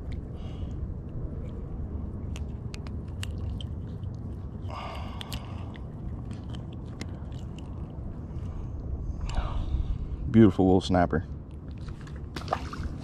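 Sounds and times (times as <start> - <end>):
steady low rumble: 0.0 - 13.0
hook and line clicking: 2.3 - 8.0.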